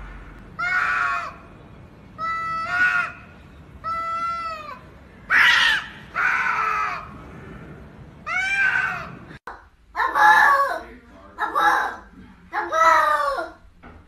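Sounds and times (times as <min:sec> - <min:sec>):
cats yowling: 0:00.6 - 0:01.4, 0:02.2 - 0:03.2, 0:03.8 - 0:07.1, 0:08.2 - 0:09.4.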